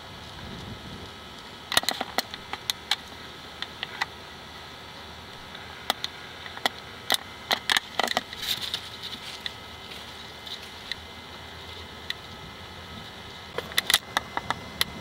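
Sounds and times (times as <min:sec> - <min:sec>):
steady hiss: 0:00.0 - 0:15.0
footsteps crunching dry leaves: 0:08.4 - 0:10.9.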